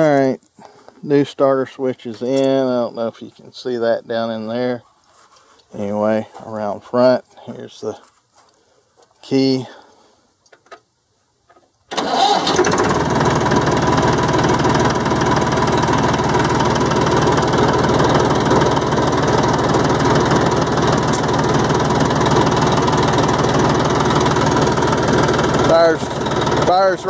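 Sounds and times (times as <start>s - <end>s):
tractor diesel engine running: 11.9s - 27.0s.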